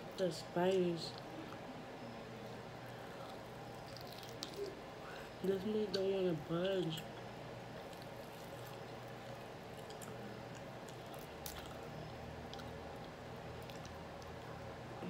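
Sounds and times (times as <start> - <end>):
person chewing meat off bone: 2.9 - 5.3, 7.0 - 14.6.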